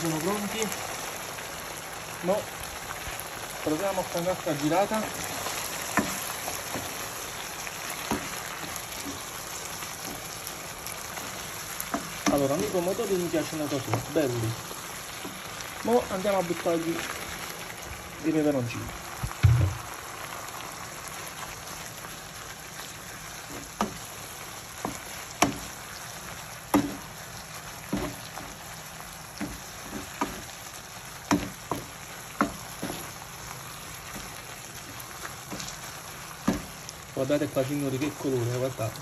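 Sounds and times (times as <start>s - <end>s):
vegetables sizzling in a frying pan: 0.0s - 39.0s
wooden spoon knocking on pan: 5.2s - 7.0s, 7.9s - 9.3s, 11.2s - 12.5s, 13.8s - 14.2s, 19.2s - 19.9s, 23.5s - 24.1s, 24.8s - 25.7s, 26.7s - 27.1s, 27.8s - 28.5s, 29.3s - 30.5s, 31.2s - 33.2s, 36.4s - 36.8s.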